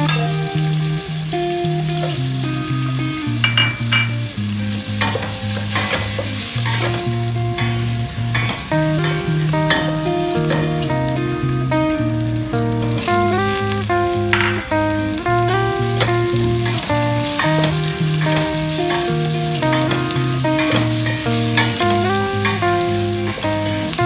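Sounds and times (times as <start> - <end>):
onion and garlic sizzling in oil: 0.0 - 24.0
plucked music over bass line: 0.0 - 24.0.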